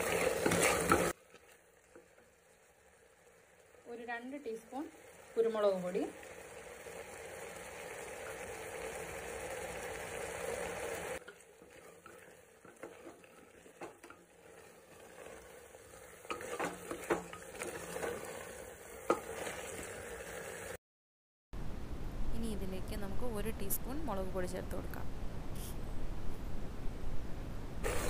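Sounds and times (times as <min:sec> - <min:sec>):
spatula stirring and scraping pot: 0:00.0 - 0:02.4, 0:11.2 - 0:20.6
meat sizzling in a pot: 0:00.0 - 0:20.8.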